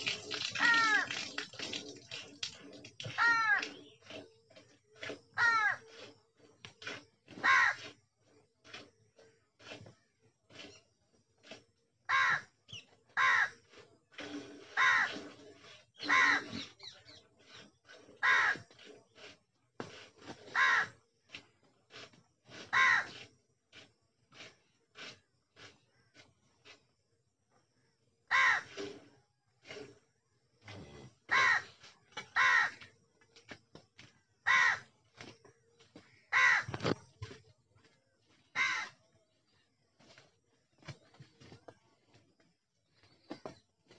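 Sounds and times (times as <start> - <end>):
crow cawing: 3.2 - 3.6, 5.4 - 5.8, 7.4 - 7.8, 12.1 - 12.5, 13.2 - 13.5, 14.8 - 15.1, 16.0 - 16.4, 18.2 - 18.6, 20.5 - 20.9, 22.7 - 23.1, 28.3 - 28.7, 31.3 - 31.7, 32.4 - 32.8, 34.4 - 34.8, 36.3 - 36.8, 38.6 - 38.9.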